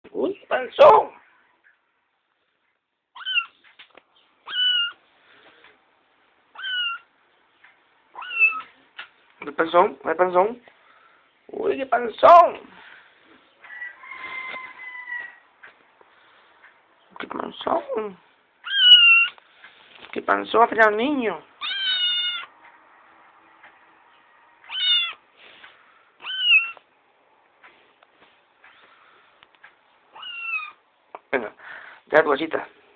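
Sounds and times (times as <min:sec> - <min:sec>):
kitten meowing: 0:03.1 - 0:03.6, 0:04.4 - 0:05.0, 0:06.5 - 0:07.1, 0:08.2 - 0:08.7, 0:18.6 - 0:19.4, 0:21.6 - 0:22.5, 0:24.6 - 0:25.2, 0:26.2 - 0:26.8, 0:30.1 - 0:30.8.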